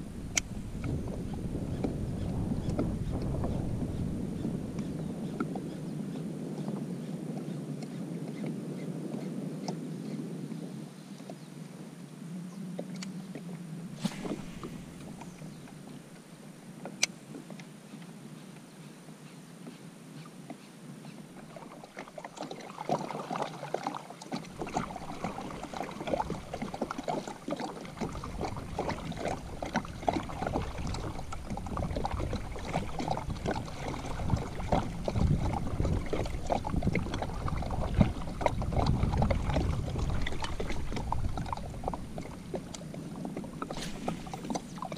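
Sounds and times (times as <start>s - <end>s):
water splashing against kayak hull: 0.0s - 9.8s, 12.8s - 17.7s, 20.5s - 44.9s
paddle strokes: 12.8s - 18.6s, 19.6s - 44.9s
low rumble: 14.0s - 16.2s.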